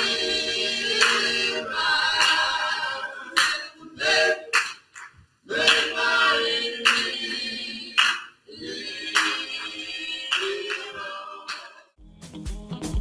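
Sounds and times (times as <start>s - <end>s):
group singing a cappella: 0.0s - 12.0s
hand claps: 0.9s - 1.4s, 2.1s - 2.5s, 3.4s - 3.7s, 4.5s - 6.0s, 6.8s - 8.4s, 9.1s - 11.8s.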